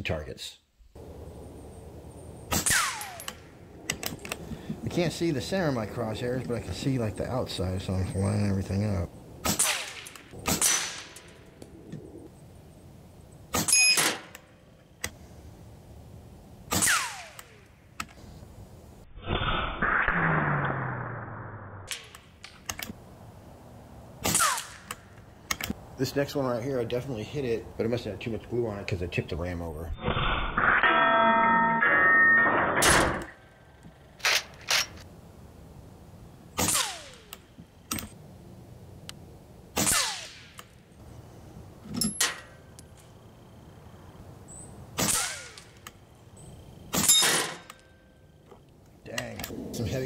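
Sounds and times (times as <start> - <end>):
air rifle shot: 2.5 - 3.4, 9.4 - 11.3, 16.7 - 17.6, 24.2 - 25.0, 36.6 - 37.3, 39.8 - 40.6, 45.0 - 45.7
steel target ringing: 30.6 - 33.4.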